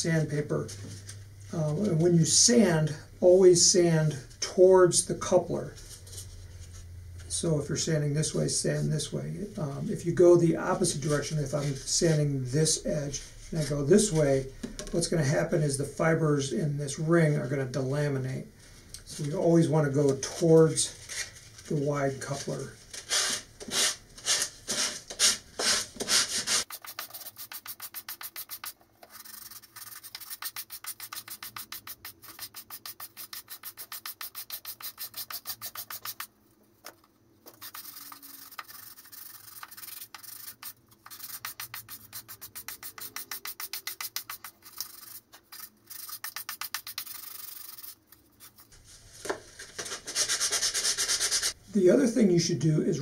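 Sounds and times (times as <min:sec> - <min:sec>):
sandpaper rasping: 0:23.1 - 0:36.3, 0:37.5 - 0:48.8, 0:49.6 - 0:51.6.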